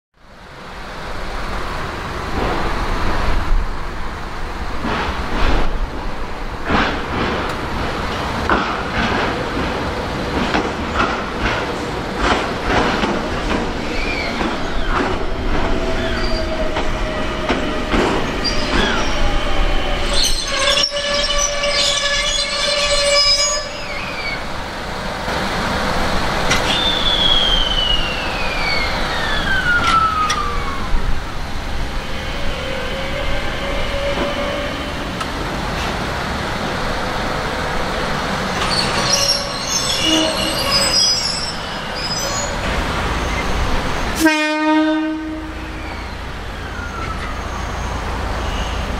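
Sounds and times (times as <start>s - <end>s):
train wheels squealing: 13.8s - 15.0s, 15.9s - 17.4s, 18.2s - 24.4s, 26.5s - 30.8s, 38.6s - 43.6s, 45.6s - 48.9s.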